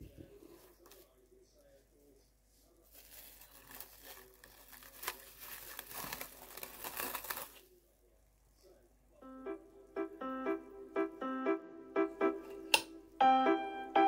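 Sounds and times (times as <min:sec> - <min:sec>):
piano: 0:09.2 - 0:14.0.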